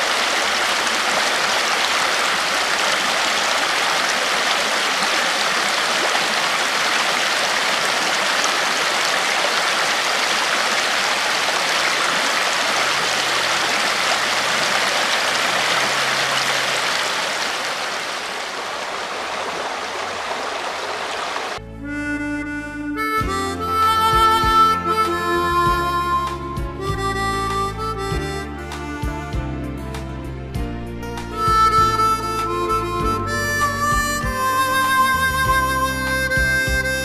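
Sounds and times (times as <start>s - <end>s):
river water flowing: 0.0s - 21.6s, 30.3s - 37.0s.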